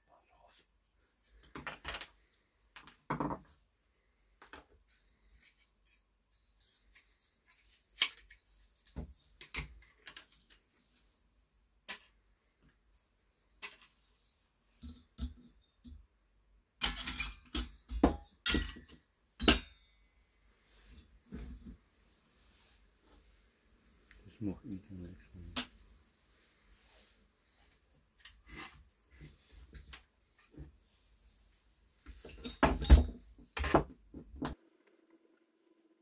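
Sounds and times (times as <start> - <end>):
tools and parts knocking on workbench: 2.8 - 3.5, 16.8 - 19.6, 32.4 - 34.6.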